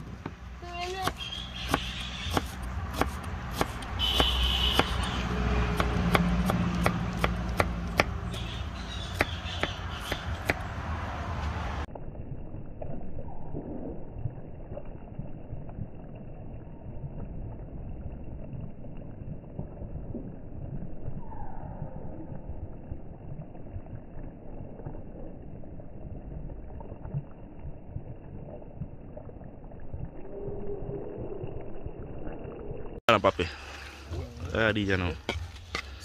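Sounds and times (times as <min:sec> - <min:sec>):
knife chopping on wooden board: 0:01.0 - 0:05.0, 0:05.7 - 0:08.2, 0:09.1 - 0:10.6.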